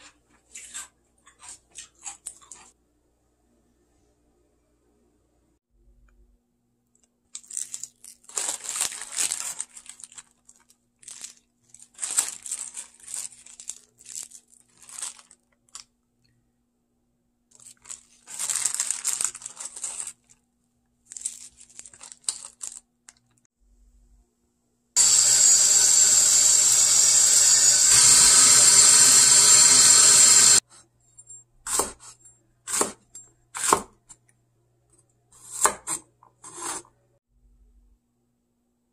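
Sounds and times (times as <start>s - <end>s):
plastic bag and gloves crinkling: 7.3s - 16.0s, 17.5s - 23.5s.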